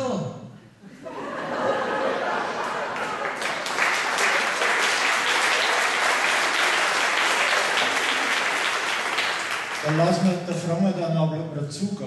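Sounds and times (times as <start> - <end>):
audience applauding: 2.4 - 10.8.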